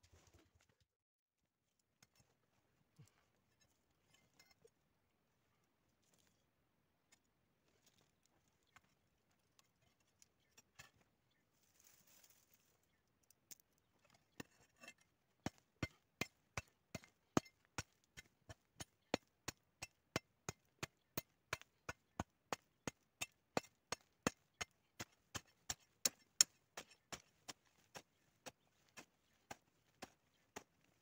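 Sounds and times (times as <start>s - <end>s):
hand hoe chopping dry soil: 14.3s - 31.0s.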